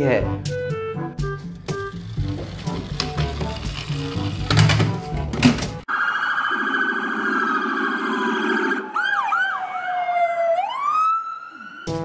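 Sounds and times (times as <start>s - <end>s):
toy police siren: 6.2s - 11.9s.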